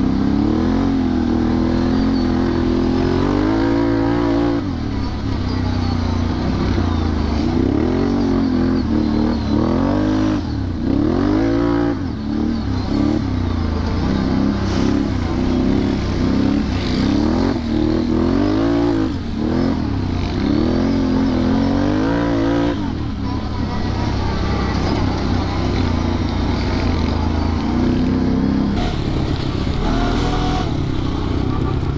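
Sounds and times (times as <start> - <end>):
atv engine revving: 0.0 - 31.9.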